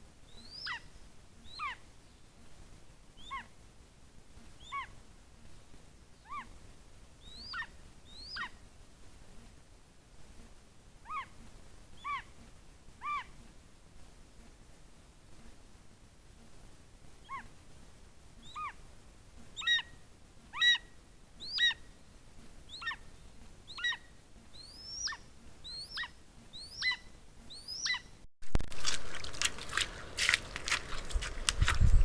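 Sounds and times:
hooves splashing in shallow water: 28.5s - 32.0s.

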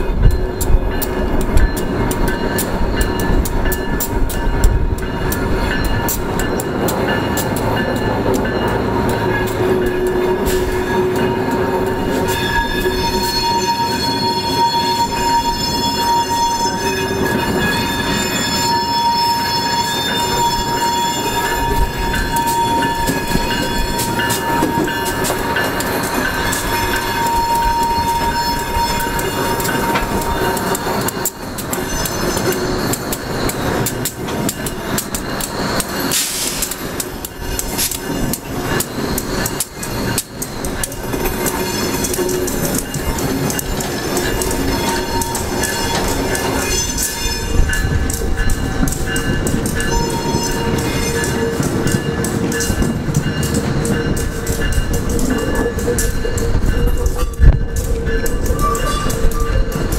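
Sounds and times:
high-pitched wheel squeal: 9.1s - 34.1s, 48.4s - 51.7s
wheels clicking over rails: 20.0s - 59.9s.

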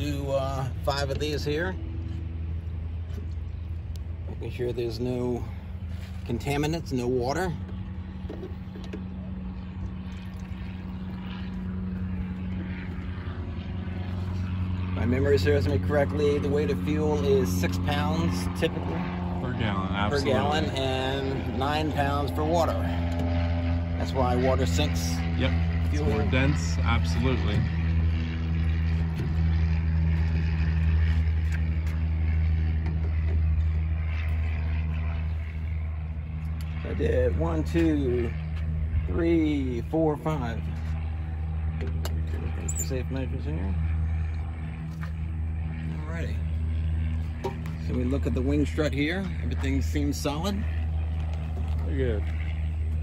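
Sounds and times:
aircraft engine droning: 0.0s - 53.0s.

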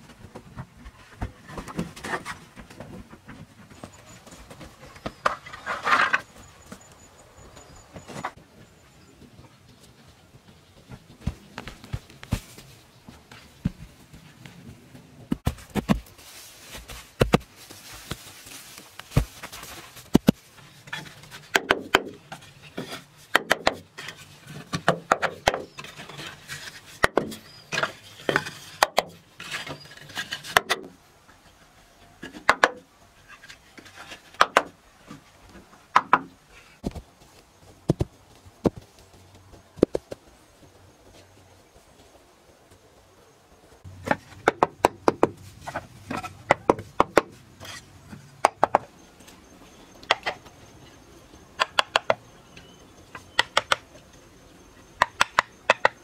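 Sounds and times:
grass rustling: 10.8s - 21.5s
bamboo knocking and clacking: 20.0s - 23.8s, 24.6s - 25.9s, 27.0s - 29.2s, 32.2s - 32.8s, 33.8s - 36.4s, 43.9s - 47.4s, 48.1s - 48.9s, 50.0s - 50.6s, 51.6s - 54.0s, 55.0s - 56.0s.

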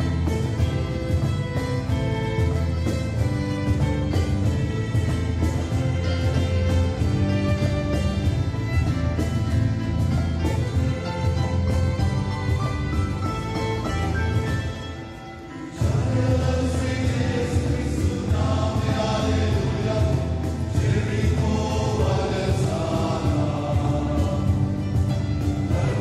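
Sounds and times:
instrumental accompaniment: 0.0s - 26.0s
choir singing a hymn: 15.6s - 26.0s.

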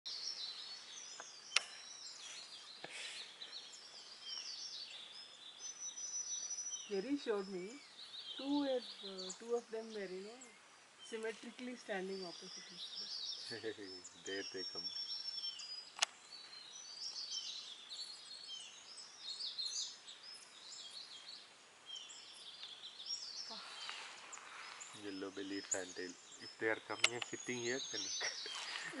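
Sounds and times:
faint steady hiss: 0.1s - 29.0s
small birds chirping: 0.1s - 29.0s
sharp clicks: 1.2s - 1.7s, 15.9s - 16.2s, 26.9s - 27.4s
sharp click: 16.0s - 16.2s, 27.0s - 27.4s.

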